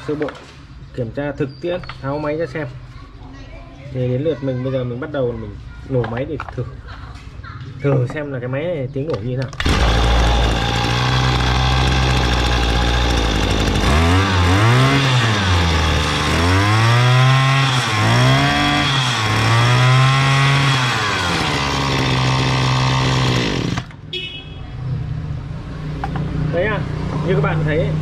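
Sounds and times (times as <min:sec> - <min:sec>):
brush cutter engine revving: 0:09.6 - 0:24.0.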